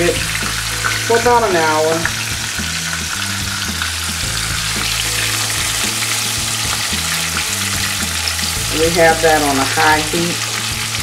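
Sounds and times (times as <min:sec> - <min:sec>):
chicken sizzling in a pan: 0:00.0 - 0:11.0.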